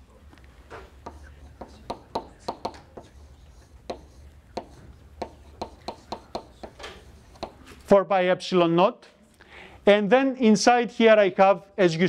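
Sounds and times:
chalk tapping on blackboard: 1.0 - 7.7.

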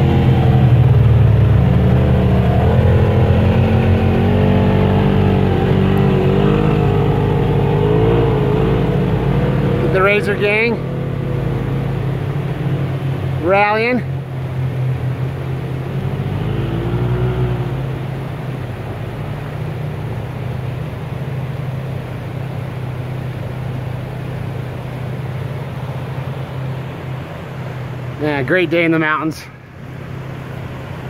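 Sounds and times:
engine idling drone: 0.0 - 31.0
faint engine revving: 0.0 - 31.0
flooded creek rushing: 0.0 - 31.0.

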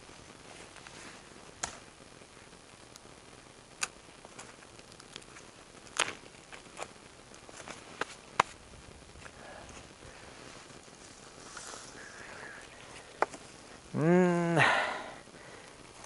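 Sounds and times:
branches cracking and snapping: 1.6 - 1.9, 3.7 - 8.6.

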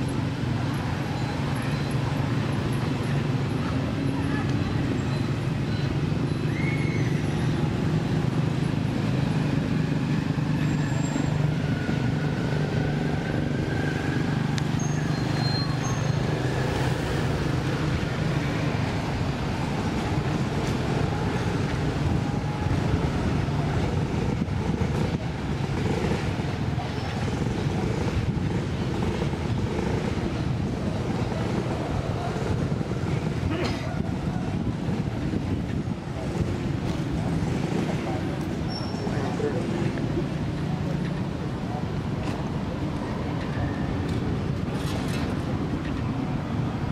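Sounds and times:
vehicle engines rumbling: 0.0 - 46.9
faint high whistled tones: 4.6 - 7.6, 14.7 - 16.3.

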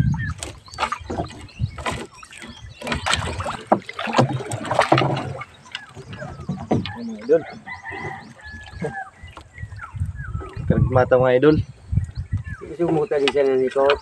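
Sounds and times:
water splashing and dripping: 0.0 - 10.8
net knocking against hull: 2.8 - 9.0.

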